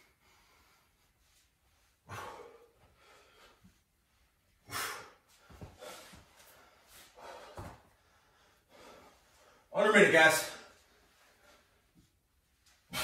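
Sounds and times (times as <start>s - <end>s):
person breathing hard: 0.0s - 3.9s, 4.6s - 9.7s.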